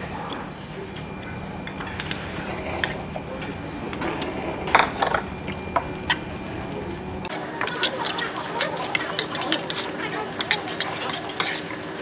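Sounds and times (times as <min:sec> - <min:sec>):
metal spoon scraping metal bowl: 0:07.3 - 0:12.0.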